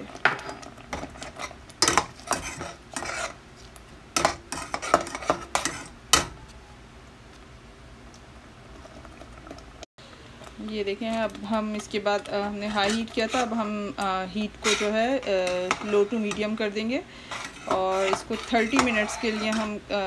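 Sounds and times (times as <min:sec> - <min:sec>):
metal spatula scraping saucepan: 0:00.4 - 0:03.4, 0:04.2 - 0:06.3, 0:12.3 - 0:20.0.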